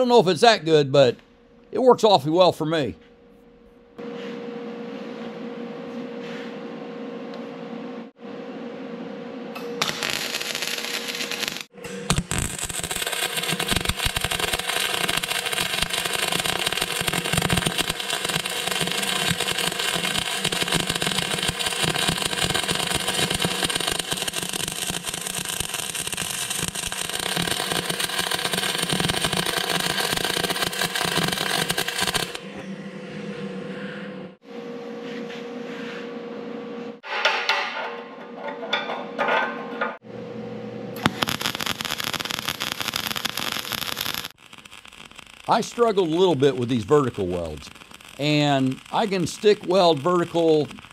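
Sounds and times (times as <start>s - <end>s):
welding arc crackle: 9.8s - 32.4s, 41.0s - 50.9s.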